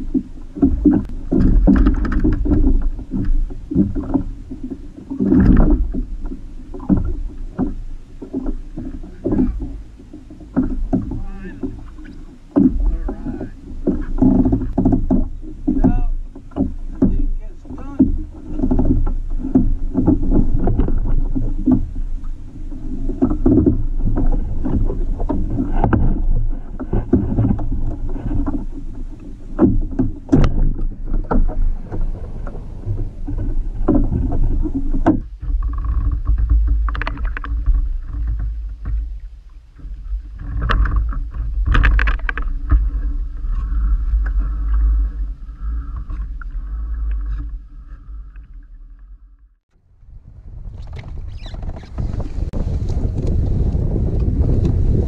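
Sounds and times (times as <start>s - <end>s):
water lapping against a boat hull: 0.0s - 55.0s
knocks on a boat: 10.5s - 21.9s, 29.5s - 32.1s, 32.9s - 44.8s
wind buffeting microphone: 49.8s - 55.0s.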